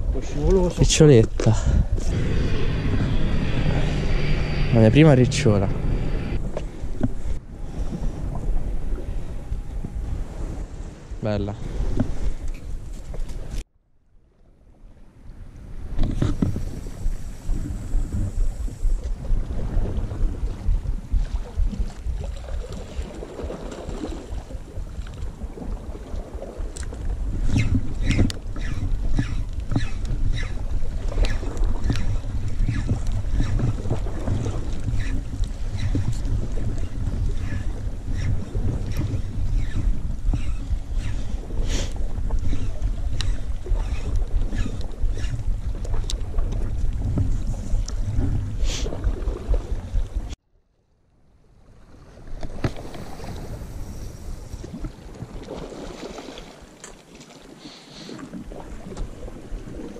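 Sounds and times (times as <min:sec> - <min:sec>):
wind buffeting microphone: 0:00.0 - 0:13.6, 0:15.0 - 0:50.4, 0:51.7 - 0:56.3
steady low rumble: 0:01.5 - 0:11.1
fishing reel ticking: 0:27.4 - 0:33.9, 0:34.8 - 0:45.7
sea waves washing on rocks: 0:52.4 - 0:59.9.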